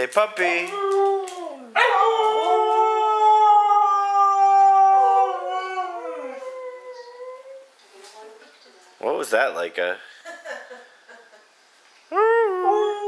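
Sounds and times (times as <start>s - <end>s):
husky howling: 0.8s - 7.6s.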